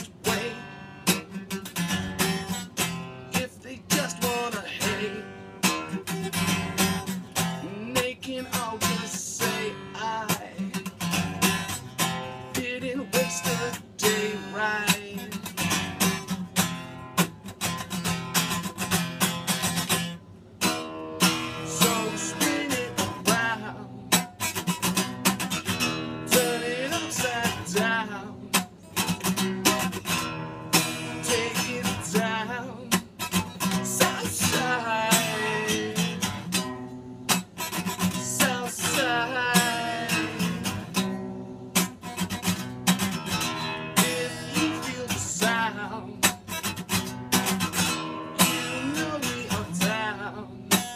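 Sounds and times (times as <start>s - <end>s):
man singing: 0.0s - 1.8s, 3.2s - 16.3s, 21.2s - 24.4s, 25.6s - 36.7s, 37.8s - 42.0s, 43.1s - 50.9s
acoustic guitar strumming: 0.0s - 50.9s.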